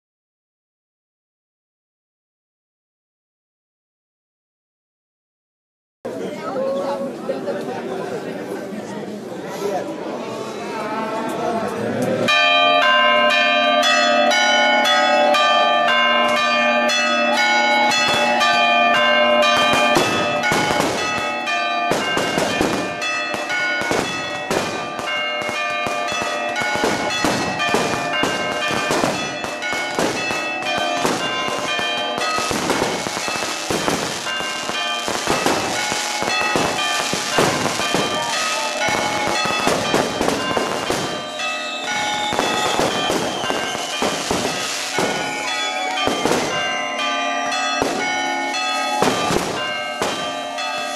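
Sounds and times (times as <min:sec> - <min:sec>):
church bells ringing: 0:12.2 - 0:50.9
fireworks banging and crackling: 0:17.8 - 0:50.9.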